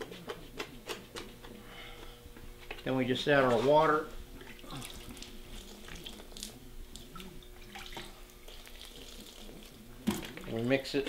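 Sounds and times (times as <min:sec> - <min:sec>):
water running into a plastic tub: 0:03.5 - 0:11.0.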